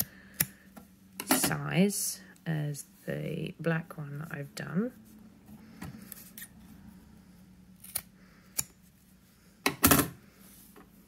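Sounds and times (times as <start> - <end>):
scissors snipping fabric: 7.8 - 8.7.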